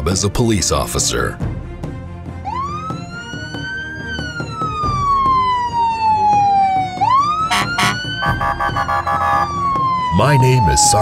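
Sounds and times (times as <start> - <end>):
police siren wailing: 2.4 - 11.0.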